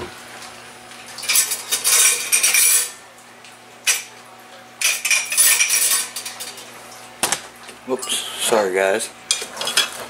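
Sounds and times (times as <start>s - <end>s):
metal cutlery clattering: 1.2s - 3.0s, 4.8s - 6.7s, 9.3s - 10.0s.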